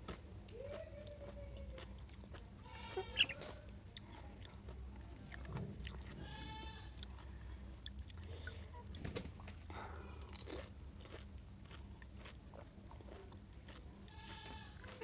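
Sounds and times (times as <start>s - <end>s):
farm animal bleating: 2.5s - 3.6s, 6.0s - 7.4s, 14.0s - 15.0s.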